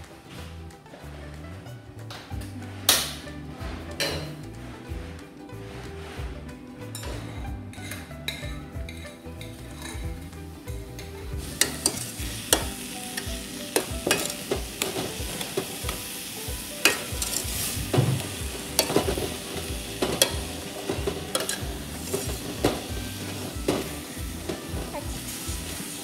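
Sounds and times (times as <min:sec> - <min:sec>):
spoon clinking against pot: 0:11.0 - 0:15.0, 0:20.0 - 0:22.8.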